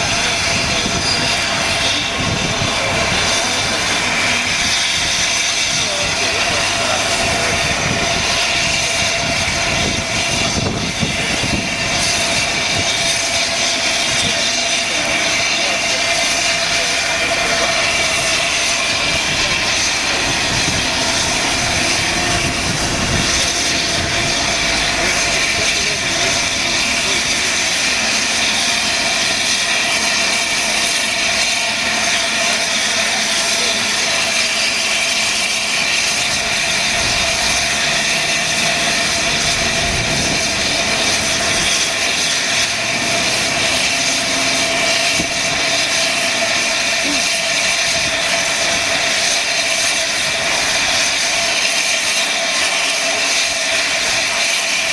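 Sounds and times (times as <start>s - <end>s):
steam escaping in loud roar: 0.0s - 54.9s.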